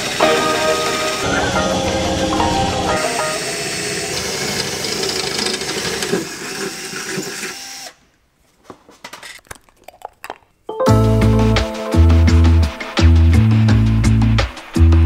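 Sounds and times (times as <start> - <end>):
power drill running: 3.3 - 8.0.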